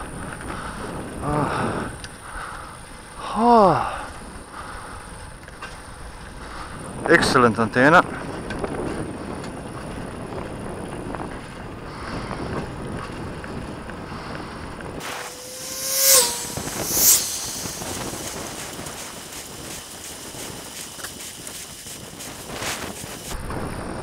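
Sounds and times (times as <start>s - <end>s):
tone dropping in pitch: 15.0s - 18.4s
cars passing by: 15.0s - 18.7s
steady rushing noise: 15.0s - 21.7s.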